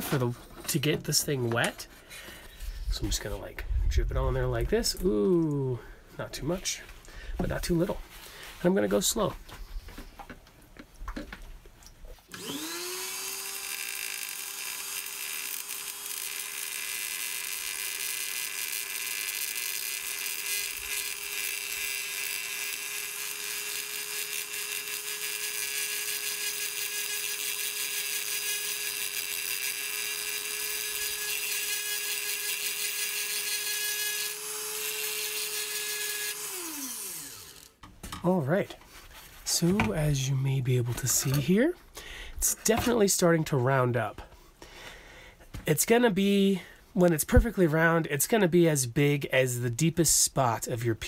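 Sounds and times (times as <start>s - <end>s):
rotary tool humming: 12.3s - 37.8s.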